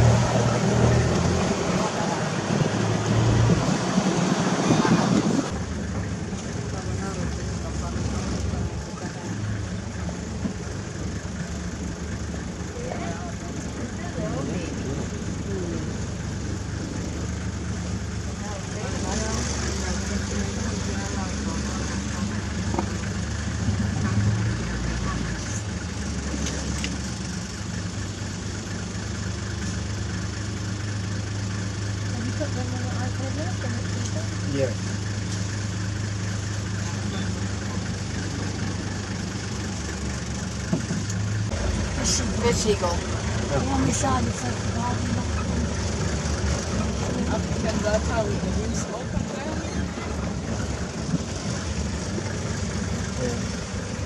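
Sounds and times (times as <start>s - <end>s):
off-road vehicle engine: 0.0s - 54.0s.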